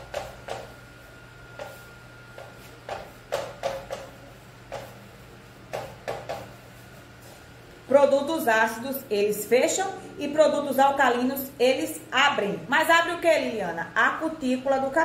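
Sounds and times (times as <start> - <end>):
steady low hum: 0.0 - 15.0
chalk scratching on chalkboard: 1.6 - 7.4.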